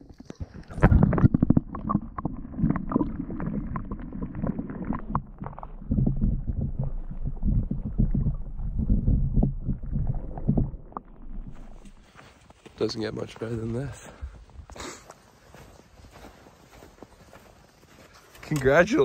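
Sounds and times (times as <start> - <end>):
muffled underwater rumbling: 0.0 - 12.0.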